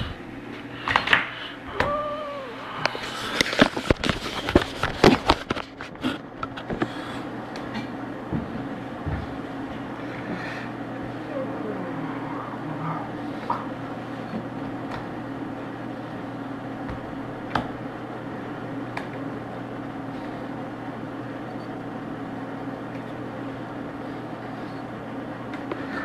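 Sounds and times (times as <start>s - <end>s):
low electrical hum: 0.0s - 26.0s.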